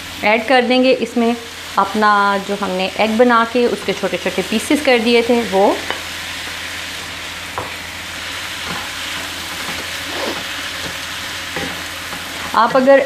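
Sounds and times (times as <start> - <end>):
vegetables sizzling in oil: 0.0 - 13.0
wooden spoon scraping a wok: 8.4 - 13.0.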